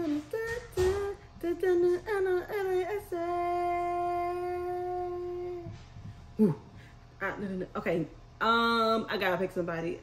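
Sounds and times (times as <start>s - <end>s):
woman singing sliding notes: 0.0s - 5.8s.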